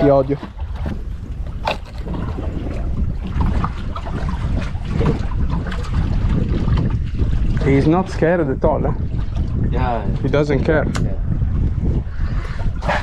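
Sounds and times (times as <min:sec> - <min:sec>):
sea water sloshing around boat: 0:00.0 - 0:10.4
wind buffeting microphone: 0:00.0 - 0:13.0.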